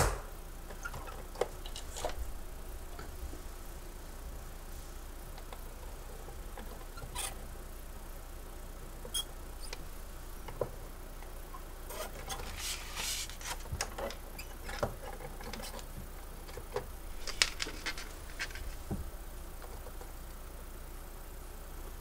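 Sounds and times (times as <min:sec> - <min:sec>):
film rustling: 0:12.2 - 0:16.0, 0:16.6 - 0:19.0.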